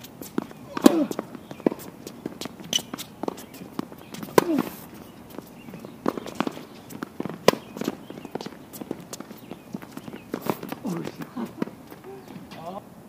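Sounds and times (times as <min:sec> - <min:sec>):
racket strikes and ball bounces: 0:00.0 - 0:12.6
player grunting: 0:00.7 - 0:01.2.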